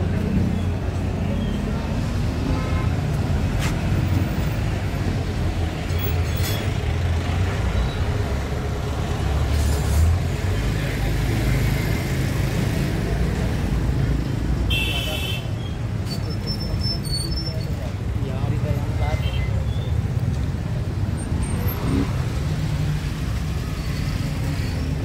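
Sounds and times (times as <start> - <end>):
rumble of passing vehicles: 0.0 - 25.0
people talking: 16.3 - 19.9.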